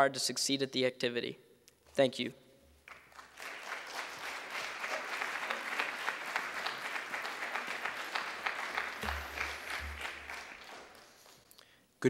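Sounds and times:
audience applauding: 2.8 - 11.5.

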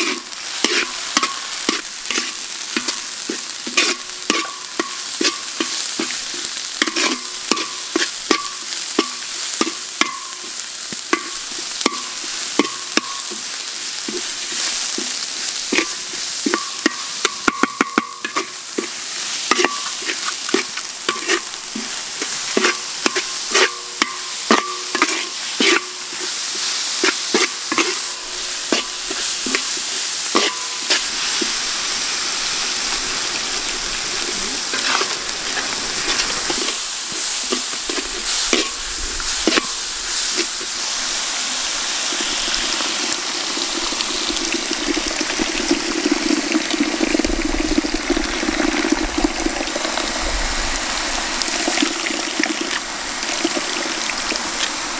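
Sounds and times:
metal spatula scraping a wok: 0.0 - 10.3, 14.1 - 41.2
spice paste sizzling: 0.0 - 54.9.

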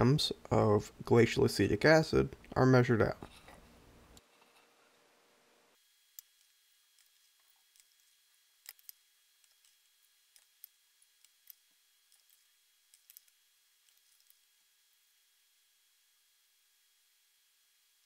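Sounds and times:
faint small ticks and clicks: 6.1 - 14.5.

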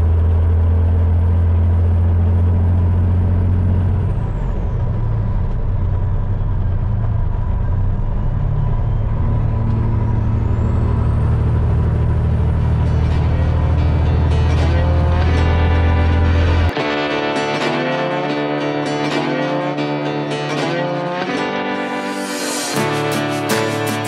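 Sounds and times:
truck diesel engine running: 0.0 - 17.1
high engine whine: 0.0 - 24.0.

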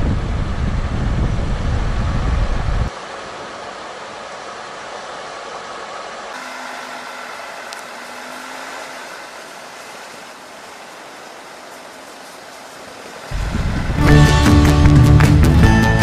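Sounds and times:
tyre and wind noise: 0.0 - 2.9, 10.6 - 16.0
faint hum: 0.0 - 16.0.

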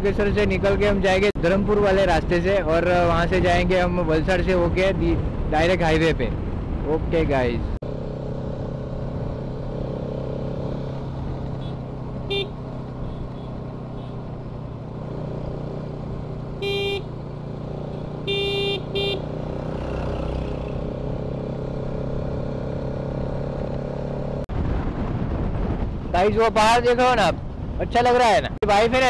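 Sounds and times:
motorcycle engine running: 7.8 - 24.4
vehicle horn honking: 11.6 - 14.2, 16.6 - 17.1, 18.2 - 19.3.

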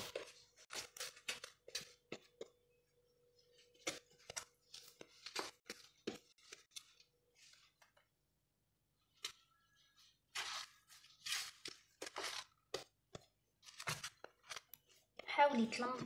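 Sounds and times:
pastry sheets crinkling: 9.1 - 15.2.

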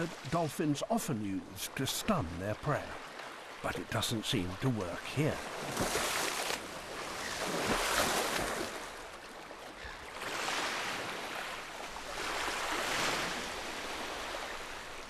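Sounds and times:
small waves washing up beach: 0.0 - 15.0
splashing in shallow water: 0.0 - 15.0
dolphin tail splashing: 5.4 - 14.9.

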